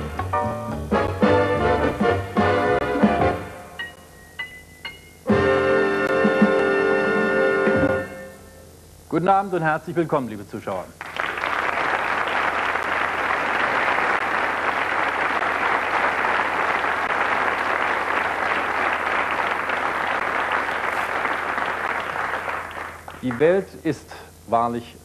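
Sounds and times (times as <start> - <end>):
studio audience applauding: 11.0 - 23.8.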